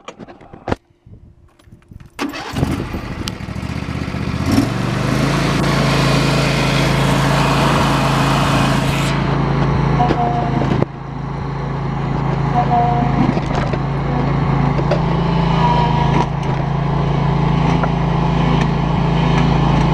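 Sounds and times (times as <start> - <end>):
electric starter cranking engine: 2.2 - 9.6
mower engine running: 2.2 - 19.9.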